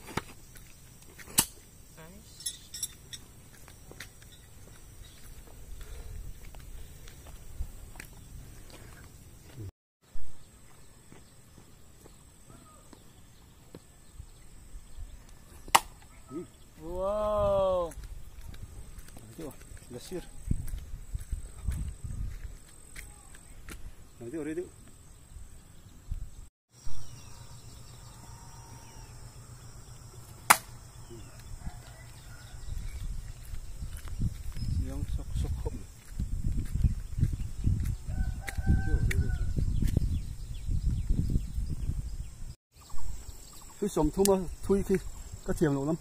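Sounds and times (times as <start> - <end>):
footsteps on dirt: 0.0 - 1.4, 2.8 - 9.7, 10.4 - 13.9, 17.8 - 24.1, 31.1 - 40.2
blade striking wooden target: 30.4 - 30.8.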